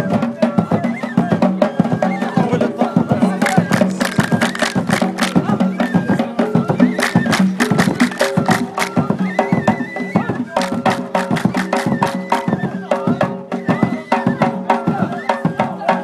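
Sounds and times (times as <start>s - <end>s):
drum strokes: 0.0s - 16.0s
handclaps: 3.4s - 5.5s, 7.0s - 9.2s, 10.6s - 12.4s.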